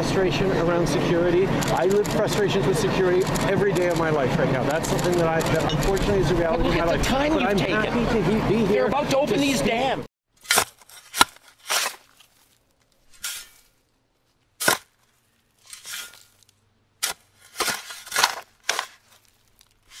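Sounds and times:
shovel scraping into sand: 10.4 - 13.8, 14.6 - 15.0, 15.6 - 20.0.

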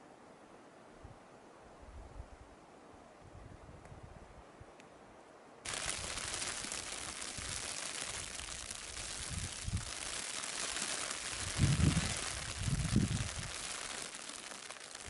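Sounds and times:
rain falling: 5.7 - 15.0
wind on microphone: 9.0 - 10.0, 11.3 - 13.6.

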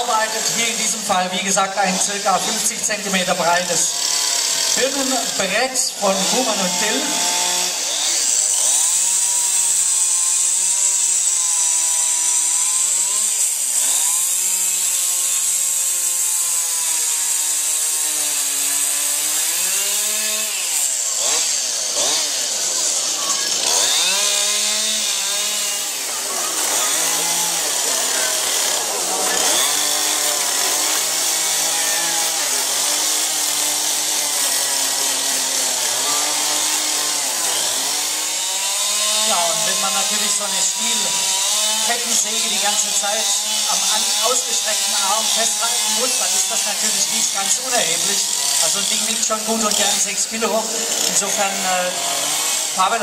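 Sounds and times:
chainsaw cutting wood: 0.0 - 53.0.

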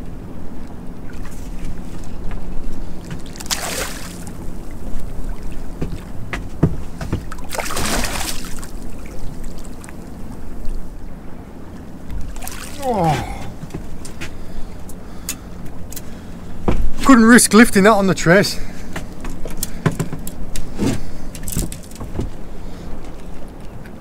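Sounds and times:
water slopping against boat hull: 0.7 - 10.8, 12.0 - 15.0.

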